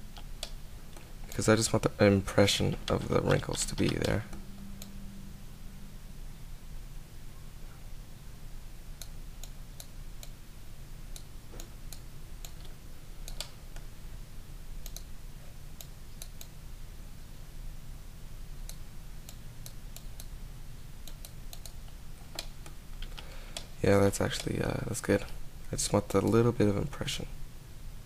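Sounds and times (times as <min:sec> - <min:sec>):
low electrical hum: 0:00.0 - 0:28.0
computer mouse clicks: 0:02.8 - 0:04.2, 0:11.1 - 0:13.9, 0:14.8 - 0:15.1, 0:15.8 - 0:16.5, 0:21.0 - 0:23.7
keyboard clicks: 0:02.8 - 0:04.9, 0:14.8 - 0:15.1.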